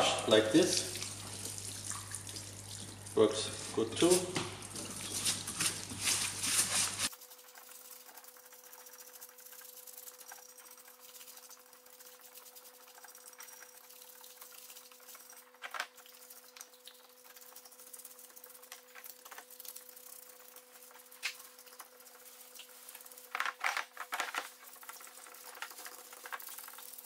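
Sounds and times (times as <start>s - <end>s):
cleaning fluid running: 0.0s - 7.1s
brush scrubbing metal: 3.5s - 7.1s.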